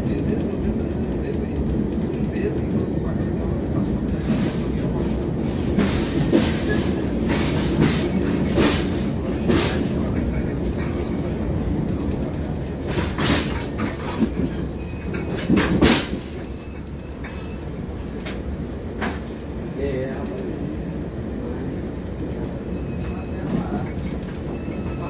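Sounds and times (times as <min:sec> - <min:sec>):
train wheels clacking on rails: 0:00.0 - 0:19.5
train rumble inside carriage: 0:00.0 - 0:25.0.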